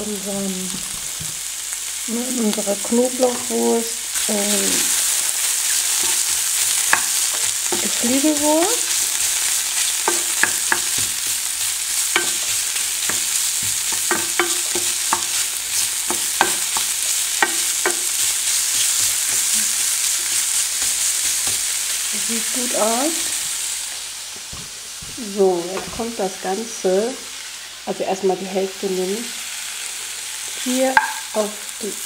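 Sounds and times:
sausage sizzling in a frying pan: 0.0s - 32.0s
spatula knocking and scraping pan: 2.9s - 3.7s, 4.7s - 21.8s, 30.9s - 31.3s.

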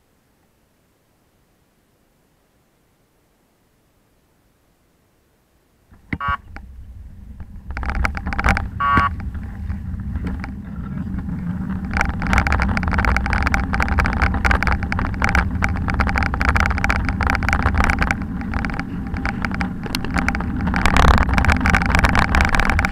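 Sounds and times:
wind buffeting microphone: 6.0s - 22.9s
bike rattling on bricks: 6.4s - 22.9s.

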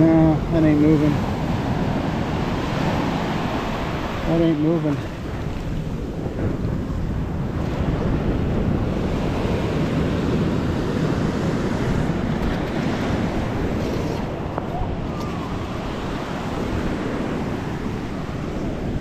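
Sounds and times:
small waves breaking: 0.0s - 19.0s
wind rumbling on microphone: 0.0s - 19.0s.

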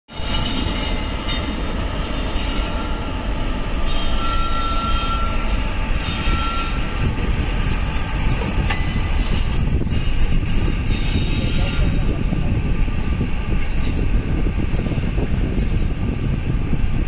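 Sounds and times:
locomotive hum: 0.1s - 17.0s
train wheels rumbling on rail: 0.1s - 17.0s
thin wheel squeal: 3.9s - 7.0s.

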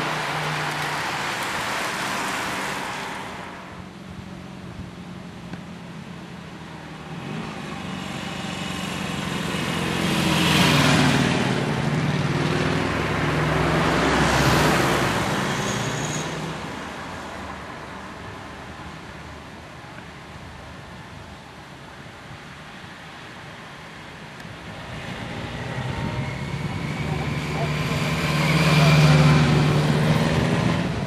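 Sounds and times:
rushing noise: 0.0s - 3.9s
vehicles passing by: 0.0s - 31.0s.

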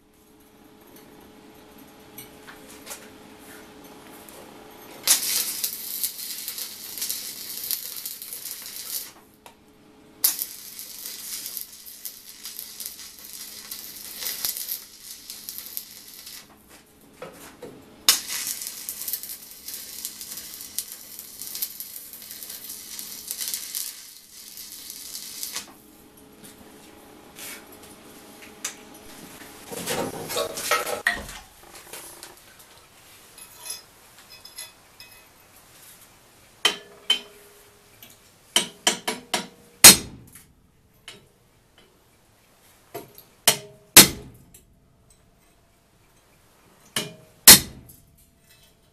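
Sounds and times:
arc welding crackling sizzle: 2.5s - 40.6s, 46.4s - 48.1s.

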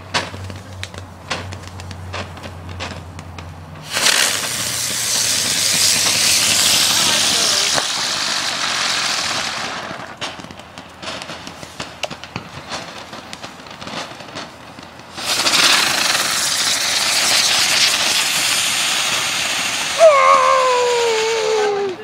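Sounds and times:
firework crackling pops: 0.0s - 22.0s
firework fountain hissing: 0.0s - 22.0s
firework pop and whistle: 0.0s - 22.0s.

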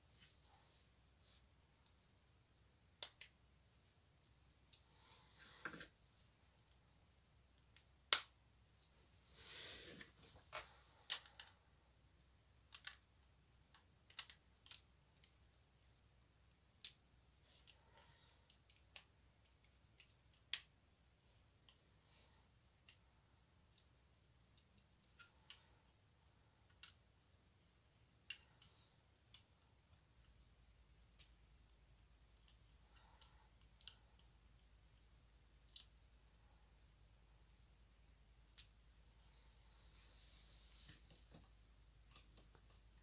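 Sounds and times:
plastic bricks clicking: 11.1s - 11.6s, 12.7s - 13.0s, 13.7s - 15.5s, 26.6s - 27.1s.

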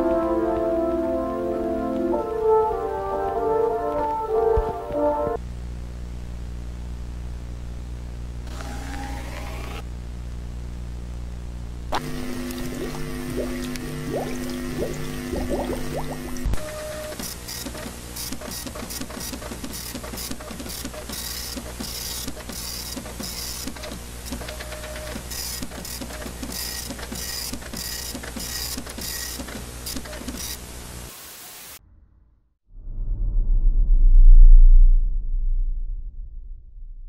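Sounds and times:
steady low hum: 5.4s - 16.6s
low rumble: 32.7s - 37.0s.

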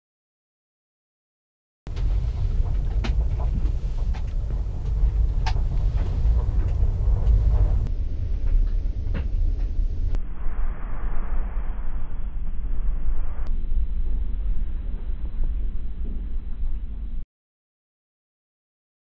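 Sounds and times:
road rumble inside car: 1.9s - 10.2s.

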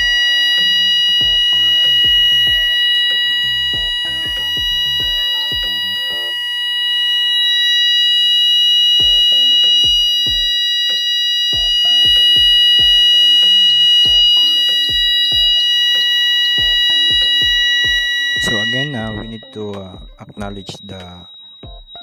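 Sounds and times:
background music with beat: 0.0s - 6.4s, 8.9s - 22.0s
high-pitched fire alarm tone: 0.0s - 22.0s.

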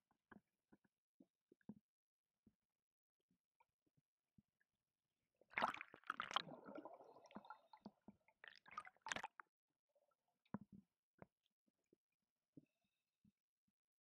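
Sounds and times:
water gurgling underwater: 5.6s - 9.4s.

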